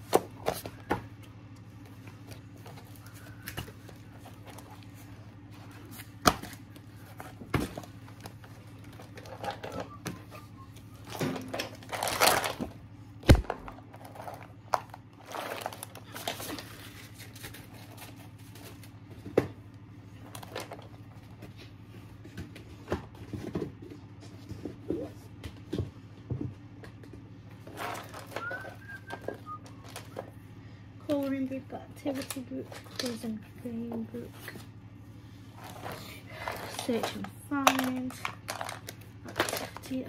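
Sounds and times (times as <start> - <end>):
low steady hum: 0.0 - 40.0
paper pages rustling: 11.1 - 12.6, 13.5 - 19.0.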